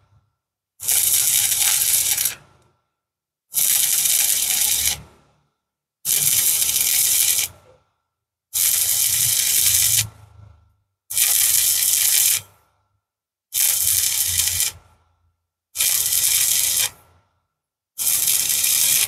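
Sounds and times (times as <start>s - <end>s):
welding arc crackling and hissing: 0.9s - 2.4s, 3.6s - 5.0s, 6.1s - 7.5s, 8.6s - 10.0s, 11.2s - 12.4s, 13.6s - 14.8s, 15.8s - 16.9s, 18.0s - 19.0s.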